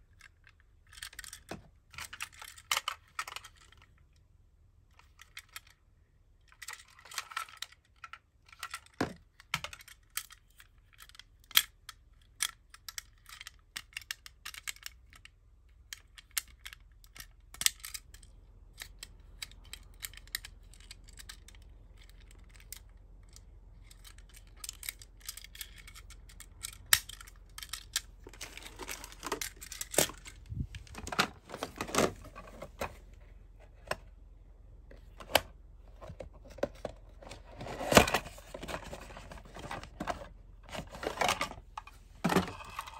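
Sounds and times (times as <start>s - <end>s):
toy cars clicking and tapping: 6.6s - 30.3s
cardboard box rustling and crinkling: 28.2s - 33.1s, 36.0s - 41.6s.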